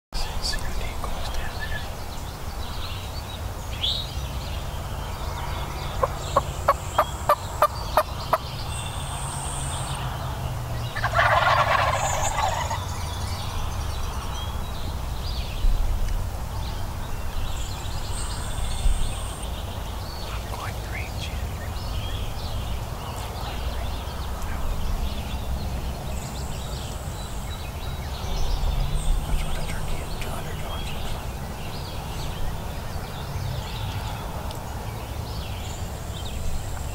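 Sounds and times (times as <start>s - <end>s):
turkey gobbling: 6.0s - 8.1s, 11.0s - 12.8s.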